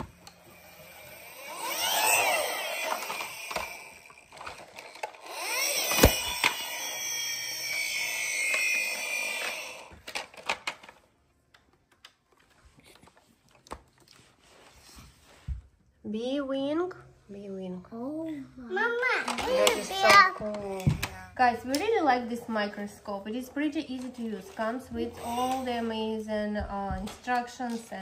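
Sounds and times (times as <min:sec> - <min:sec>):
rustling and scraping of plastic toy: 0:00.0 - 0:11.1, 0:12.0 - 0:15.8, 0:19.1 - 0:21.0.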